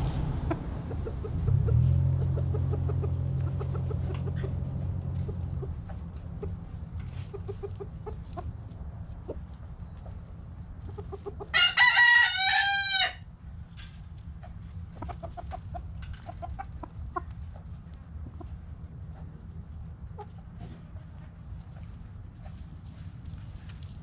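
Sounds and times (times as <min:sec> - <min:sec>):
hens clucking: 0:00.0 - 0:13.1, 0:14.2 - 0:24.0
rooster crowing: 0:11.5 - 0:13.3.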